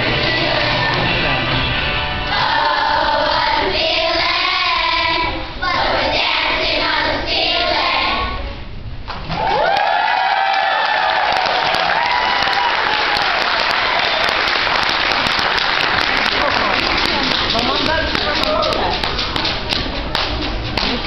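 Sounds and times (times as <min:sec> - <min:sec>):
children's choir singing: 0:00.0 - 0:01.6, 0:02.2 - 0:08.4.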